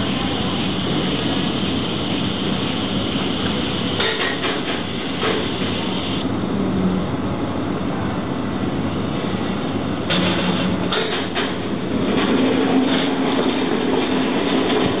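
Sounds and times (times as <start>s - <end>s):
stacker crane mechanical hum: 0.0s - 15.0s.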